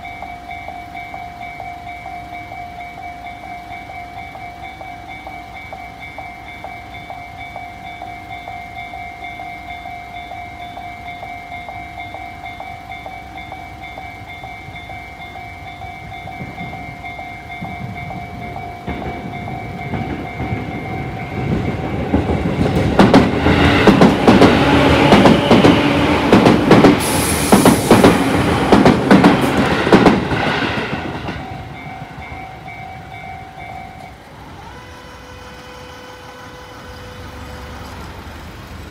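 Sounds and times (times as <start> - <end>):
level crossing bell ringing: 0.0 - 22.4, 31.2 - 37.4
wheels clattering over rail joints: 0.0 - 34.6
electric train passing: 0.0 - 38.9.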